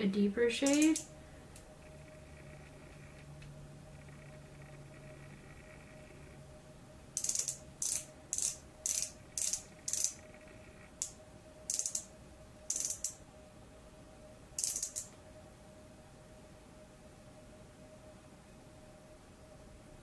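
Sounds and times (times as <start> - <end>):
pen mechanism clicking: 0.6 - 1.1, 7.2 - 10.2, 11.7 - 12.1, 12.7 - 13.2, 14.6 - 15.1.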